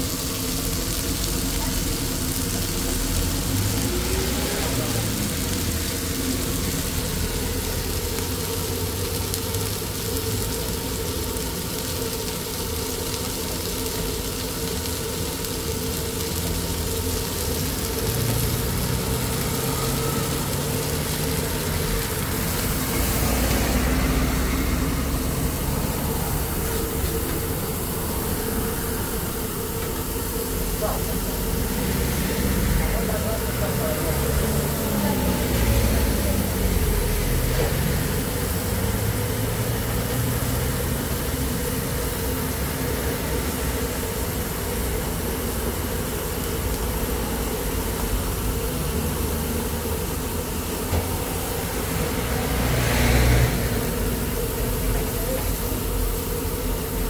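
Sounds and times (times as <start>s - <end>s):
low drone: 0.0s - 9.0s, 16.4s - 41.6s, 50.6s - 56.0s
mechanical hum with hiss: 0.0s - 57.0s.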